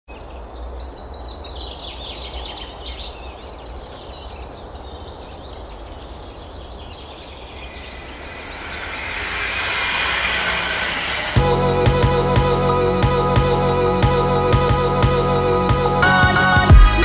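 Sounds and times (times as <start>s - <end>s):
many birds chirping: 0.1s - 11.7s
low wind rumble: 2.6s - 13.0s
hiss: 7.6s - 13.7s.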